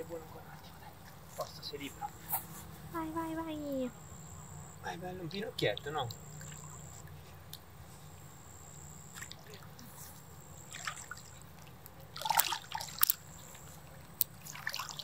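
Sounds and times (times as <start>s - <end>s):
water splashing and trickling: 4.9s - 8.2s, 8.9s - 15.0s.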